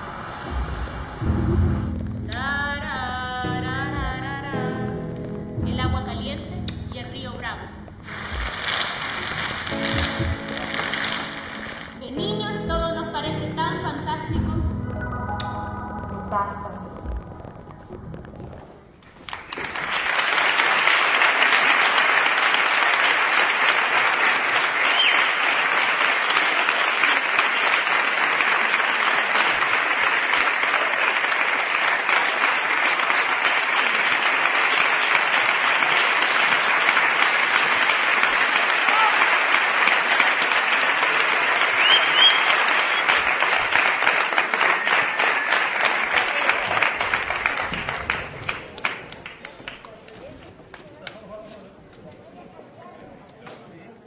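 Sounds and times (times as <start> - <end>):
audience applauding: 8.0 - 12.1, 19.0 - 51.2.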